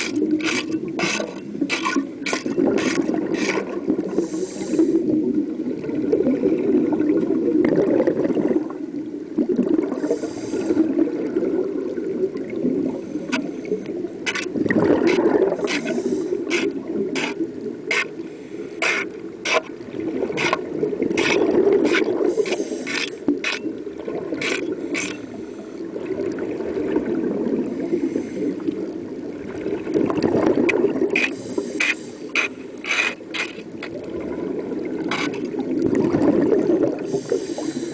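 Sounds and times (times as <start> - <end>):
scraper scraping propeller underwater: 0.0 - 5.1, 12.9 - 27.1, 29.7 - 37.9
rushing water noise: 0.0 - 37.9.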